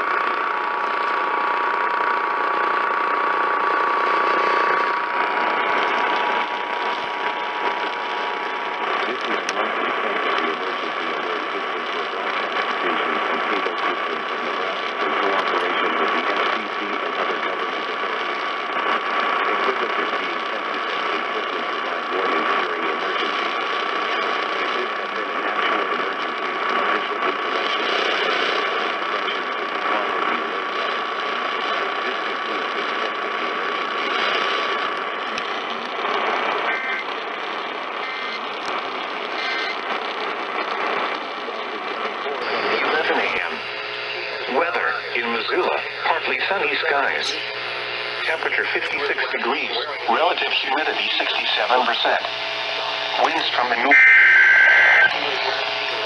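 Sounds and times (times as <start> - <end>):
crackly radio static: 0.0 - 56.0
steady radio whistle: 35.4 - 56.0.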